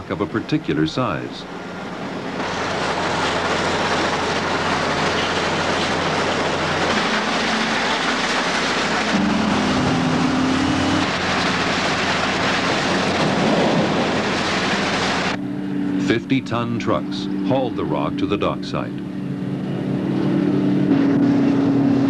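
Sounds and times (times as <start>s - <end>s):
heavy machinery engines: 0.0s - 22.0s
rock rattling on conveyor: 2.4s - 9.2s, 11.0s - 15.3s.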